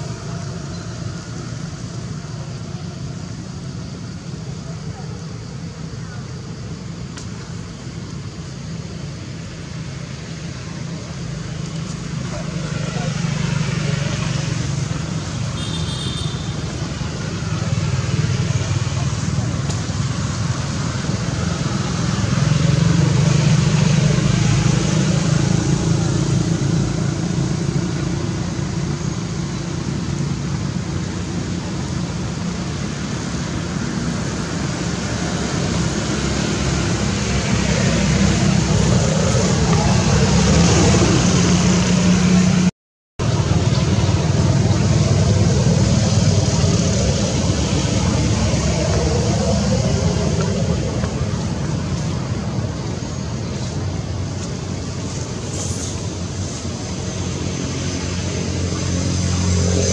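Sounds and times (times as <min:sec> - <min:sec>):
road traffic rumble: 0:00.0 - 0:59.9
low engine hum: 0:16.6 - 0:59.9.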